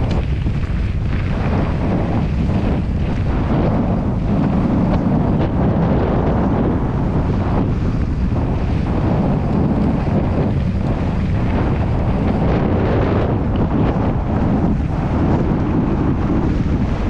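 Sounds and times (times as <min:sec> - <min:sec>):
bike tyres rolling on dirt: 0:00.0 - 0:17.0
wind buffeting microphone: 0:00.0 - 0:17.0.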